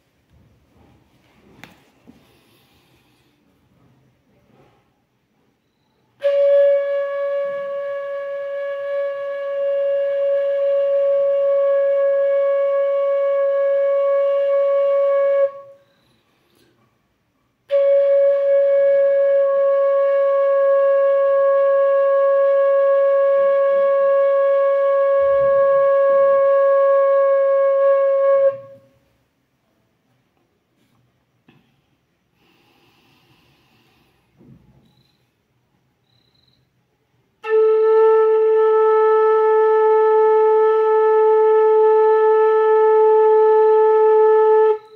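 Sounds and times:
bamboo flute long note: 6.2s - 15.9s, 17.7s - 29.0s, 37.4s - 44.9s.

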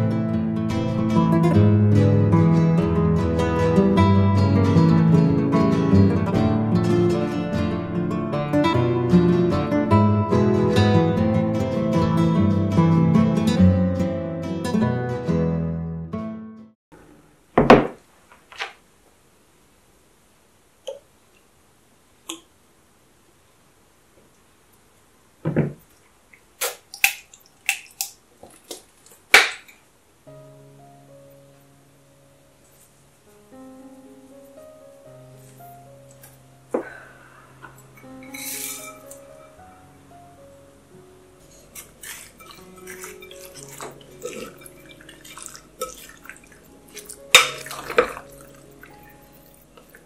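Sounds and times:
soft sustained music notes: 30.3s - 50.0s
spoon stirring pasta in bowl: 41.5s - 50.0s.

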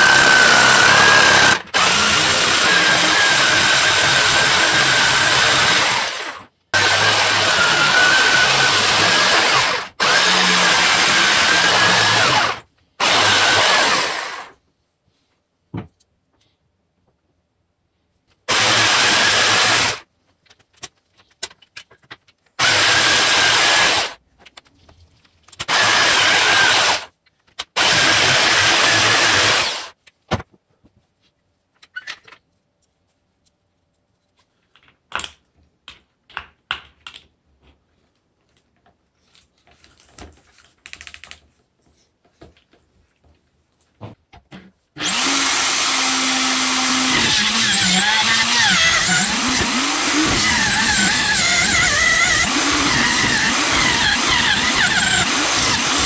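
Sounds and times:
electric jigsaw sawing wood: 0.0s - 14.6s, 18.5s - 20.0s, 22.6s - 24.2s, 25.7s - 27.1s, 27.8s - 30.0s, 45.0s - 56.0s.

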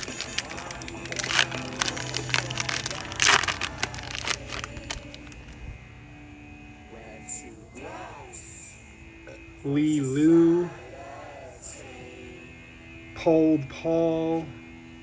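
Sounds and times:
foil wrapper crinkling and tearing: 0.0s - 5.6s.

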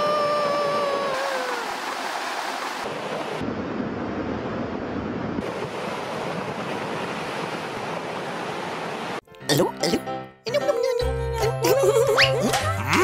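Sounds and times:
wind on microphone: 0.0s - 2.0s.

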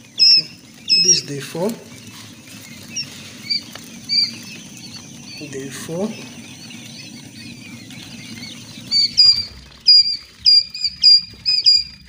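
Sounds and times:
chicks peeping: 0.0s - 12.0s.

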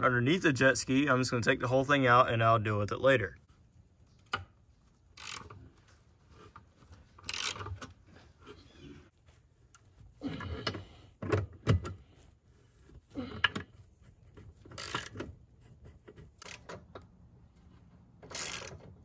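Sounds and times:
socket ratchet clicking: 5.2s - 5.6s, 7.2s - 7.7s, 14.7s - 15.2s, 16.4s - 17.0s, 18.2s - 18.8s.

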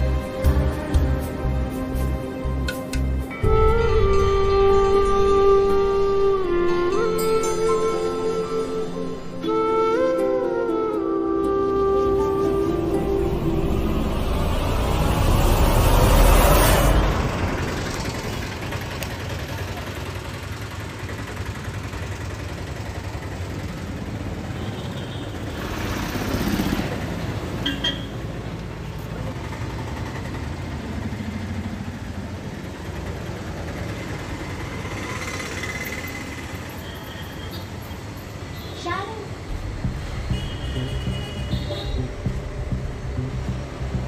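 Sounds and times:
traffic engine and road noise: 0.0s - 44.0s
vehicle passing: 12.4s - 24.5s, 39.3s - 44.0s.

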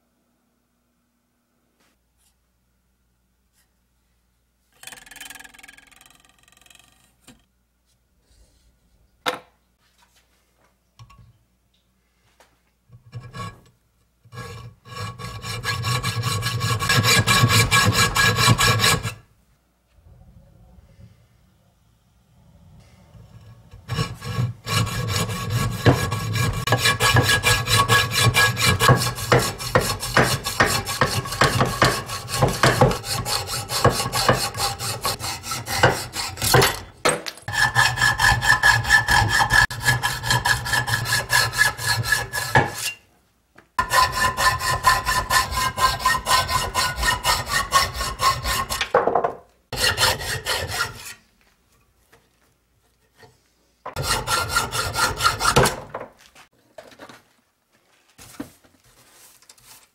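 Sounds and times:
hacksaw cutting metal: 14.3s - 19.2s, 23.8s - 36.9s, 37.5s - 43.0s, 43.8s - 48.9s, 49.8s - 51.2s, 53.9s - 55.9s.

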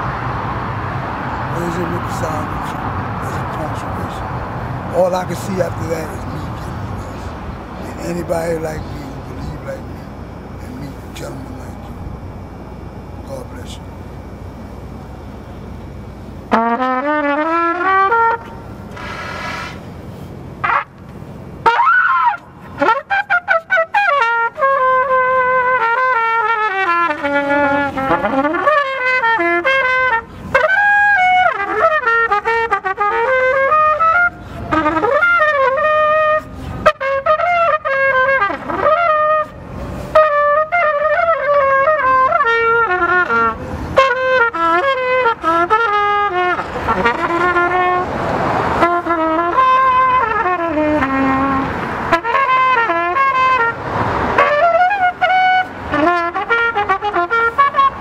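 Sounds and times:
trumpet playing a melody: 5.0s - 10.0s, 16.5s - 19.8s, 20.6s - 21.0s, 21.6s - 58.0s.

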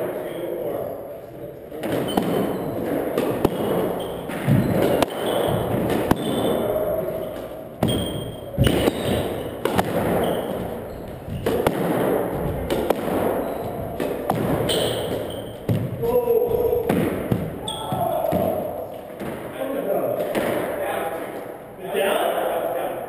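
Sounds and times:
squash ball cracks: 1.7s - 16.0s, 16.8s - 17.6s, 20.2s - 20.8s.

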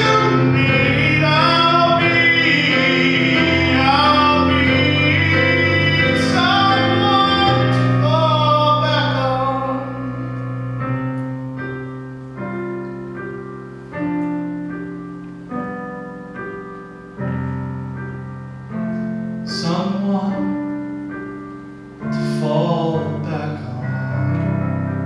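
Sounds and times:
man singing with vibrato: 0.0s - 10.6s, 19.4s - 20.8s, 22.0s - 24.7s
piano chords on keyboard: 0.0s - 25.0s.

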